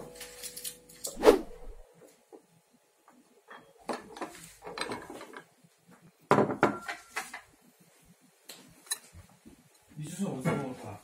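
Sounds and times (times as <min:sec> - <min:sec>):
dishes clinking on wooden table: 0:06.3 - 0:07.5.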